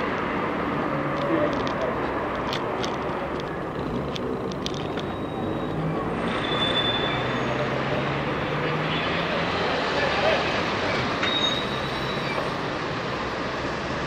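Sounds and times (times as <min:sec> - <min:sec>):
car traffic passing: 0:00.0 - 0:14.0
outdoor crowd noise: 0:00.0 - 0:14.0.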